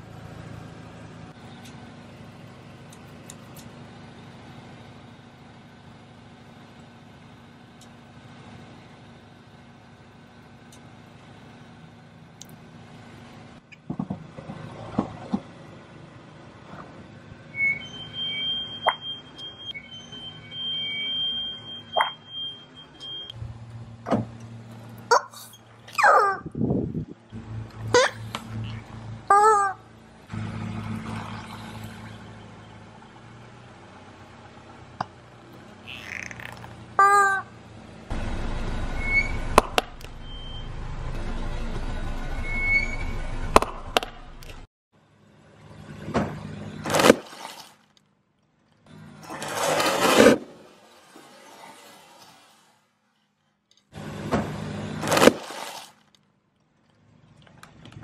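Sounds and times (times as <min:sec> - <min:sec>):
car engine idling: 0:00.0 - 0:18.4, 0:27.0 - 0:45.8
rubber chicken toy squawk: 0:27.9 - 0:29.8, 0:35.8 - 0:37.5.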